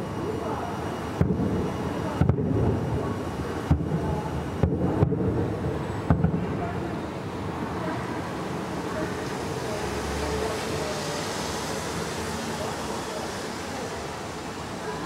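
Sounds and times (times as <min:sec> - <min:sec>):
low city rumble: 0:00.0 - 0:15.0
distant fireworks booms: 0:01.2 - 0:07.0.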